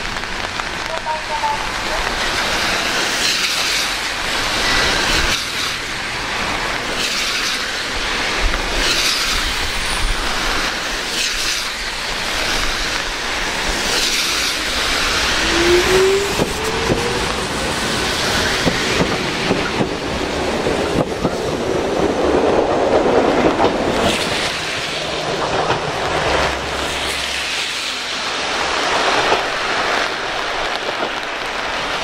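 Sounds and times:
wheels clicking over rail joints: 0.0s - 32.0s
electric train running: 2.1s - 28.0s
train motor whine: 14.2s - 19.6s.

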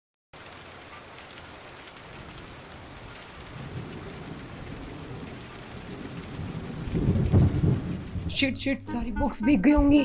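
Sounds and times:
rain falling: 0.4s - 8.7s
thunder rumbling: 2.1s - 8.8s.

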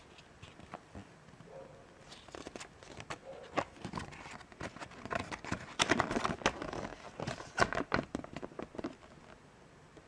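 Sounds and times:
foil bag and paper crinkling: 2.0s - 9.1s.

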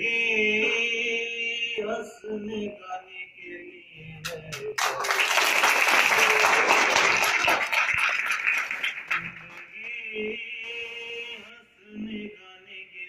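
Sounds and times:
audience applauding: 4.3s - 9.9s.

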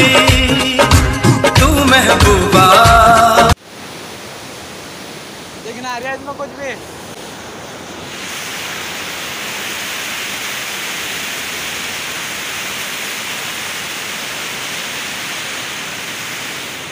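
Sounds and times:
water rushing through a channel: 3.5s - 16.9s.

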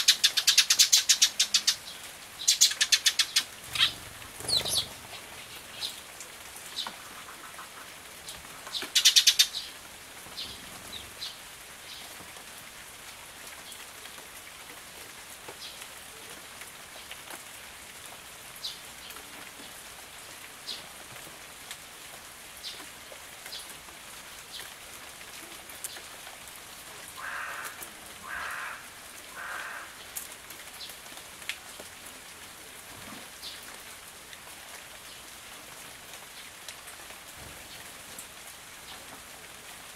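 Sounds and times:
sparrows chirping: 0.0s - 6.0s
rain pattering: 0.0s - 39.9s.

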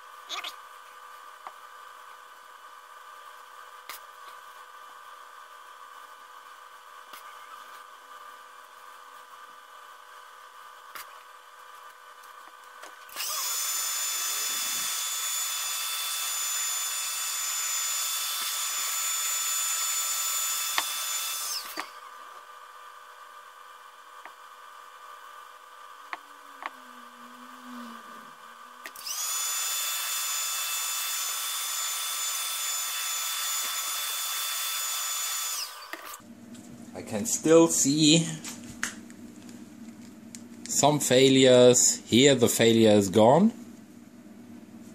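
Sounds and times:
heat gun fan hiss and whine: 0.0s - 44.9s.

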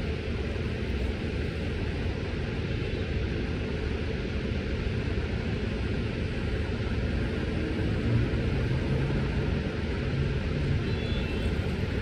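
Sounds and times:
street background rumble and hiss: 0.0s - 12.0s.

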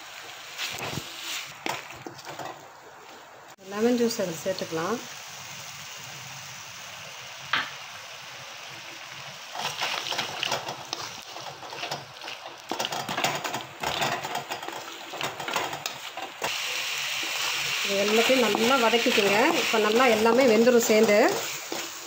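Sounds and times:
food sizzling: 0.0s - 22.0s
knock on pan: 7.5s - 7.7s.

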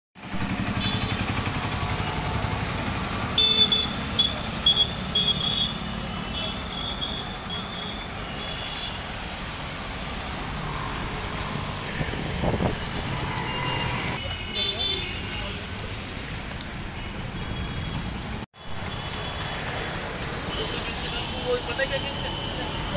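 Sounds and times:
vehicle engines running: 0.2s - 7.5s
traffic on wet road: 0.2s - 22.9s.

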